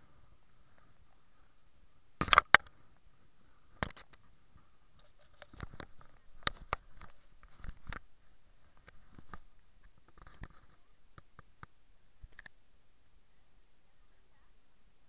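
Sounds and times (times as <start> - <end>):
faint steady hiss: 0.0 - 15.0
small clicks and rubs: 3.8 - 4.3, 4.9 - 12.6.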